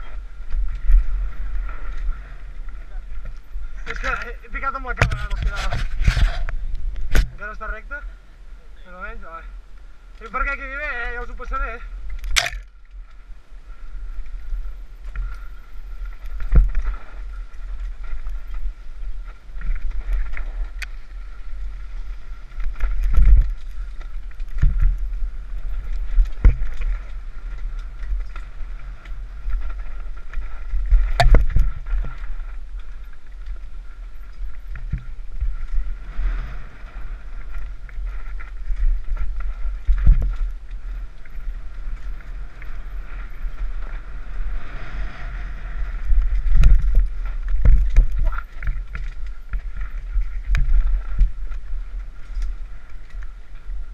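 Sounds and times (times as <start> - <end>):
bike knocking and rattling: 0.0 - 7.7, 15.0 - 36.1, 46.0 - 53.9
wind rushing over microphone: 0.0 - 8.5, 9.4 - 53.9
bike tyre noise: 0.0 - 53.9.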